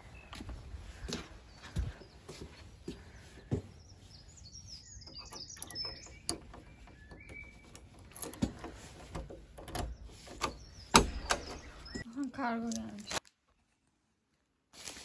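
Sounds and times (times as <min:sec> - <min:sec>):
footsteps: 0:00.0 - 0:04.1
birds chirping: 0:00.0 - 0:13.7
key clicking into door lock: 0:05.1 - 0:11.6.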